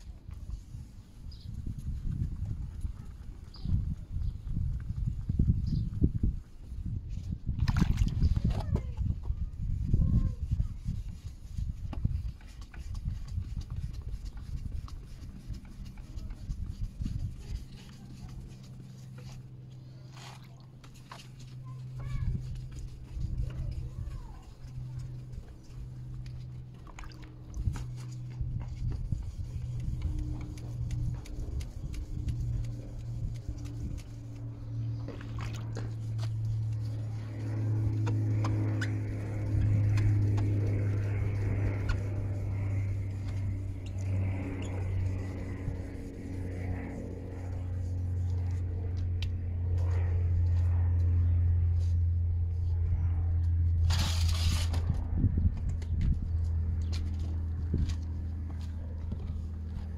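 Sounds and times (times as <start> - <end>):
steady low hum: 0.0 - 59.9
hand rubbing plastic lens: 10.4 - 50.2, 53.8 - 59.9.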